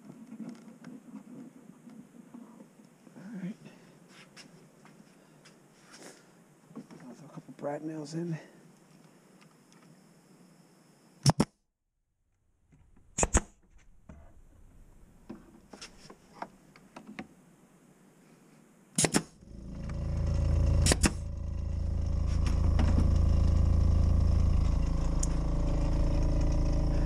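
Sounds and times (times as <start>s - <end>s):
brad nailer firing pop: 19.0s - 19.4s, 20.8s - 21.2s
air compressor humming: 19.4s - 27.0s.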